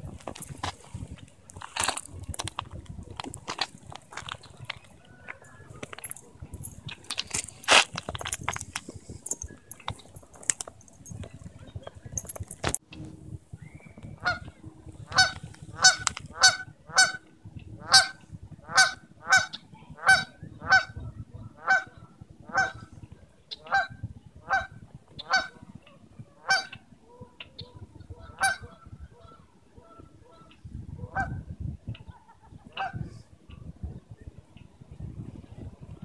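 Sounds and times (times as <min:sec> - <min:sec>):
young swan honking: 0:14.2 - 0:21.0, 0:21.6 - 0:22.9, 0:23.5 - 0:25.6, 0:26.4 - 0:26.8, 0:27.6 - 0:31.4.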